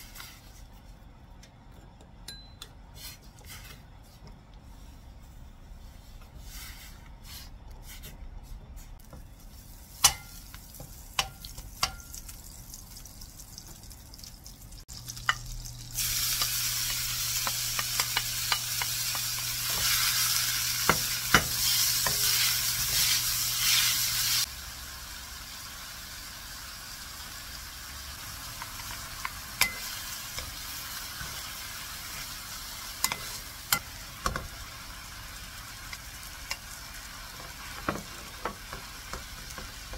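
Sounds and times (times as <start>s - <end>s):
food sizzling in a pan: 9.0s - 14.1s, 14.7s - 39.9s.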